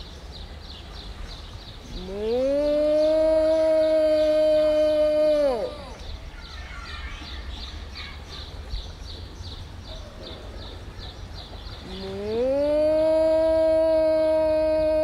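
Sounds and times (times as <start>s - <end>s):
faint chirps: 0.0s - 15.0s.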